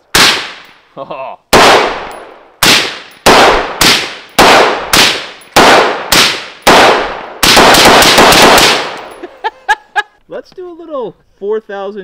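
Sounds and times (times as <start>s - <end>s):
loud rifle shots with echo: 0.1s - 0.7s, 1.5s - 9.2s.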